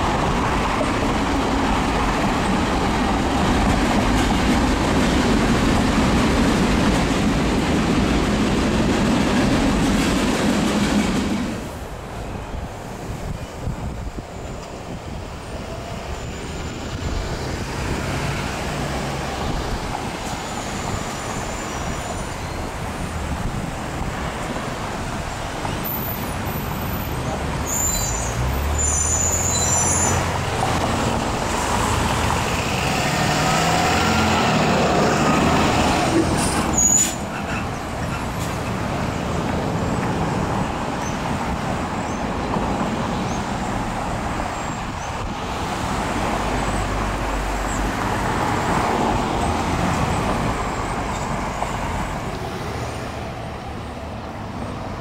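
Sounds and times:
road traffic: 0.0s - 55.0s
high-pitched squeals: 27.6s - 30.4s.

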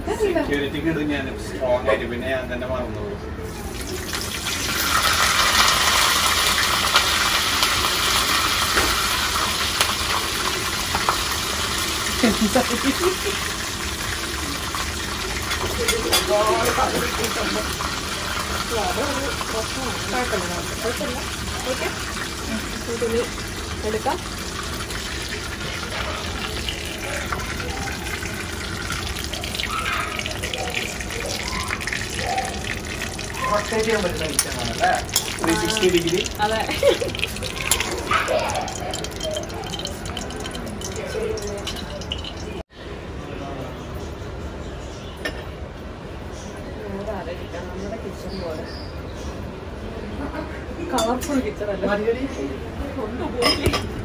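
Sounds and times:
hot oil sizzling in a pan: 3.6s - 42.7s.

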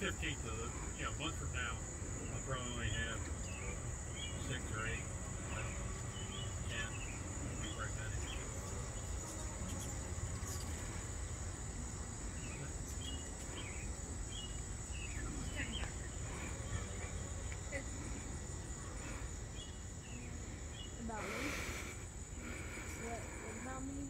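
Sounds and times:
crickets trilling: 0.0s - 24.0s
bird chirps: 12.4s - 17.1s.

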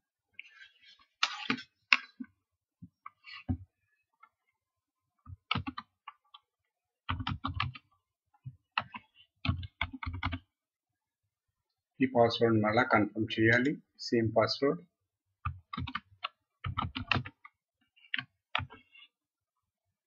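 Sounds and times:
keyboard typing: 5.4s - 6.4s, 7.1s - 7.9s, 8.8s - 10.5s, 15.4s - 18.8s.

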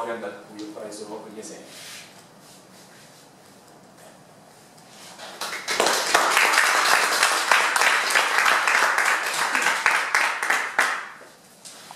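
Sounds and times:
audience applause: 5.4s - 11.2s.

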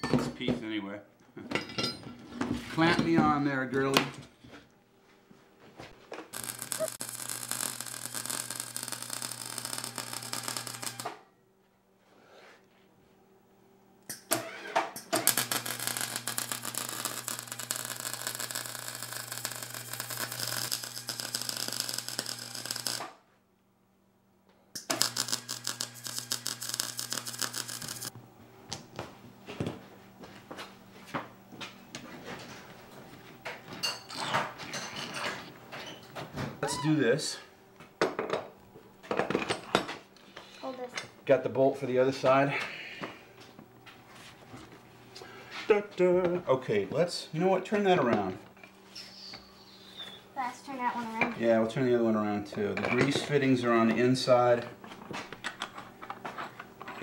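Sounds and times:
welder arc crackling and buzzing: 6.3s - 11.2s, 15.0s - 23.2s, 24.8s - 28.8s.

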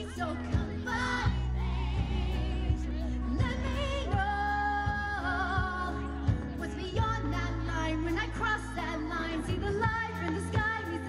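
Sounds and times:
live band playing pop song: 0.0s - 11.0s.

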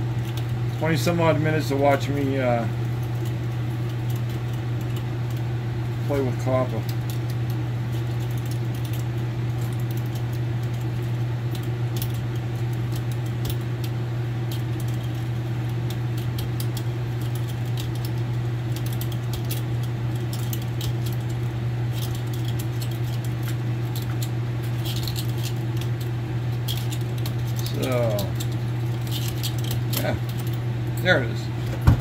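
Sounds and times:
steady low hum: 0.0s - 32.0s
copper wire clicking and clinking: 6.2s - 31.1s.

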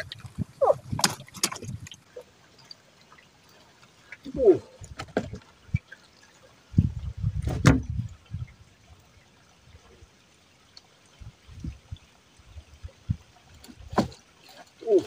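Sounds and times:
water splashing and trickling: 0.0s - 15.0s
dull low thumps: 6.8s - 8.6s.

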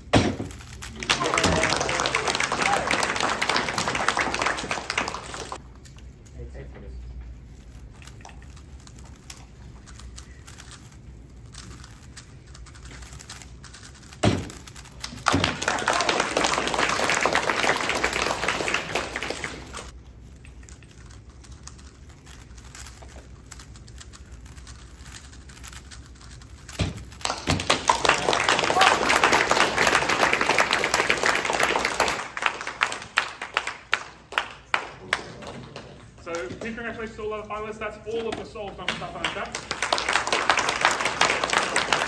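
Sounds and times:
plastic puzzle cubes clicking: 8.0s - 15.5s.

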